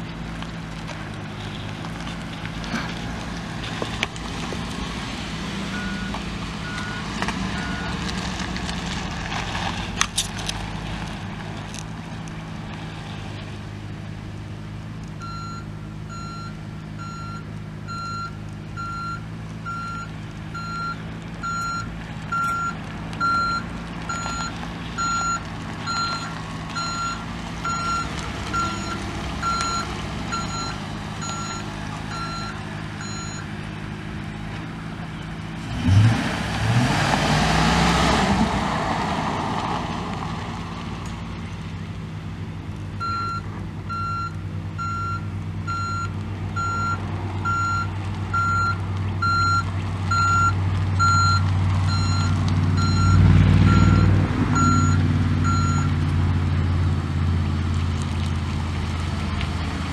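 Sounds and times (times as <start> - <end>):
truck engine idling: 0.0 - 59.9
loud rush with rising engine: 2.0 - 14.2, 15.2 - 42.0, 49.3 - 59.9
backup alarm beeping: 5.7 - 7.9, 15.2 - 33.5, 43.0 - 55.9.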